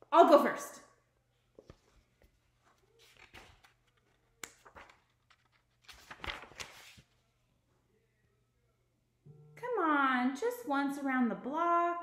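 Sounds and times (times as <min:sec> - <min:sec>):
paper pages rustling: 0:01.6 - 0:07.3.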